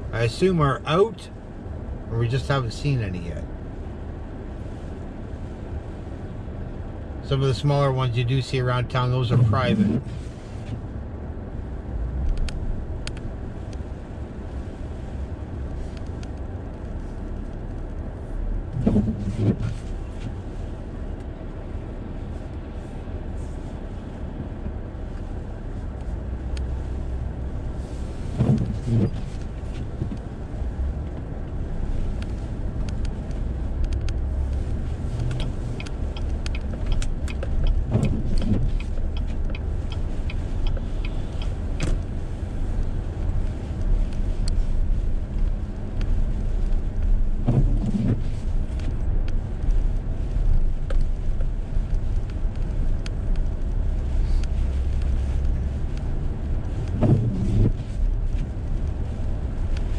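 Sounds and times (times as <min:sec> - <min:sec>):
car road and engine rumble: 0:00.0 - 0:59.9
windshield wipers sweeping: 0:08.4 - 0:59.9
light ticks: 0:12.2 - 0:13.9, 0:14.5 - 0:18.2, 0:24.6 - 0:27.0, 0:28.4 - 0:59.9.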